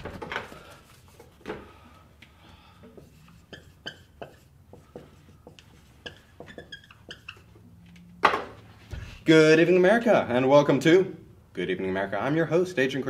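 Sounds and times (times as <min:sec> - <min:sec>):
marker squeaking on whiteboard: 0:02.8 - 0:08.1.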